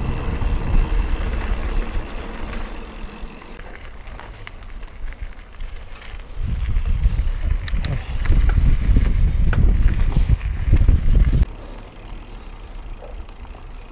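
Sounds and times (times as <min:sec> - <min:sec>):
wind buffeting microphone: 0:00.0 - 0:03.1, 0:06.2 - 0:11.5
bike rattling over gravel: 0:00.0 - 0:13.9.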